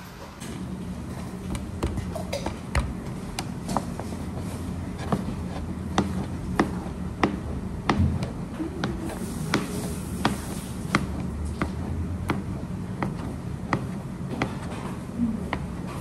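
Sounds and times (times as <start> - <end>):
steady low hum: 0.0 - 16.0
hands tapping dough on plastic board: 1.5 - 4.0, 5.0 - 14.8.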